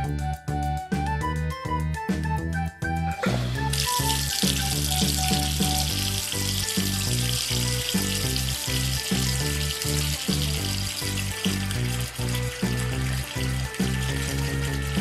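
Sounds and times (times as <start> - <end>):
rhythmic background music: 0.0 - 15.0
shower water spraying: 3.6 - 15.0.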